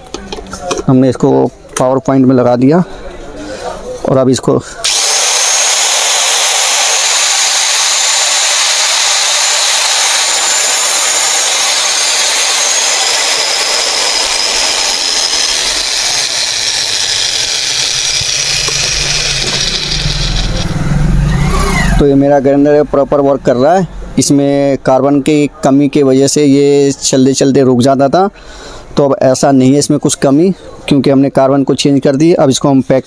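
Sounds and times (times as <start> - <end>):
angle grinder motor whine: 4.8 - 22.3.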